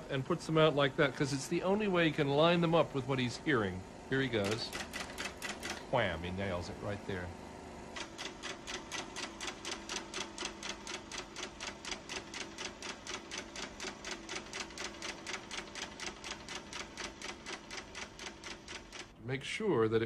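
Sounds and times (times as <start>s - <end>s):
projector motor hum: 0.0s - 20.0s
film projector clattering: 0.5s - 19.2s.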